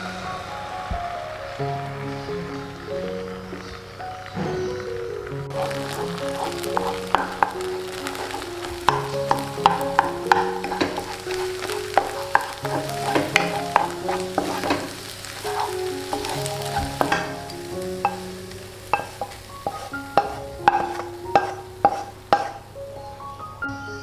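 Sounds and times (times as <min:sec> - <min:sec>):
egg sizzling: 0:00.0 - 0:22.9
soft melodic background music: 0:00.0 - 0:24.0
wooden spatula scraping a pan: 0:05.5 - 0:22.6
spatula knocking against pan: 0:06.4 - 0:14.9, 0:15.6 - 0:17.4, 0:18.0 - 0:18.3, 0:18.9 - 0:22.6.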